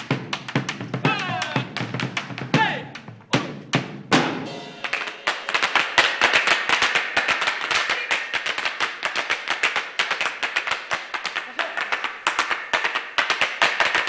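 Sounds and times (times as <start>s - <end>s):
boots stamping on tile floor: 0.0s - 4.4s.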